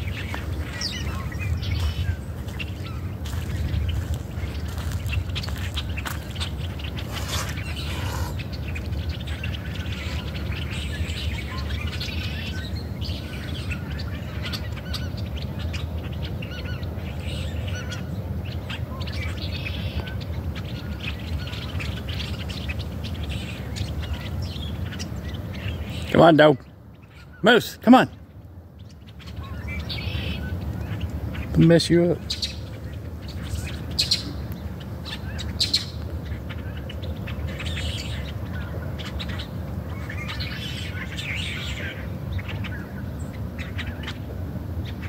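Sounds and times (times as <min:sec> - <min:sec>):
low steady rumble: 0:00.0 - 0:27.4
small birds chirping: 0:00.0 - 0:45.0.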